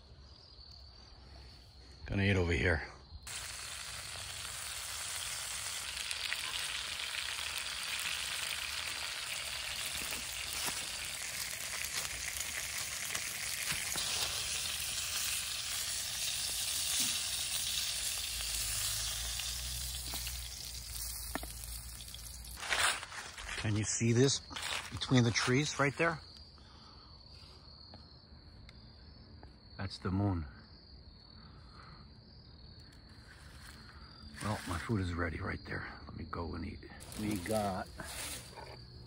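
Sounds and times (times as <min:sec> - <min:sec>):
sausages sizzling in skillet: 0:03.3 - 0:22.7, 0:37.0 - 0:38.8.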